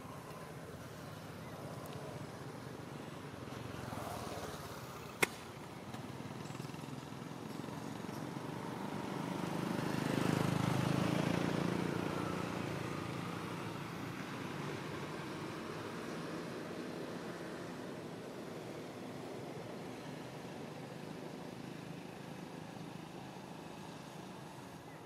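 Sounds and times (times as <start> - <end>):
motor vehicle passing: 8.3 - 17.6.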